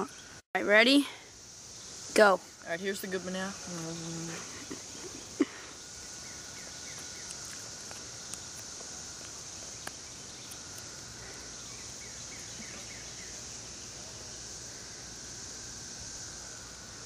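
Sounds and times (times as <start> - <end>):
high-pitched insect drone: 0.0 - 17.0.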